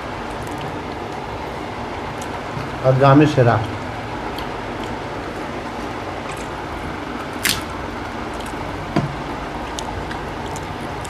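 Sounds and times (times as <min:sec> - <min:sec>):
eating clicks and smacks: 0:00.3 - 0:01.3, 0:03.6 - 0:05.0, 0:07.3 - 0:08.7, 0:09.6 - 0:11.0
food squishing: 0:03.7 - 0:11.0.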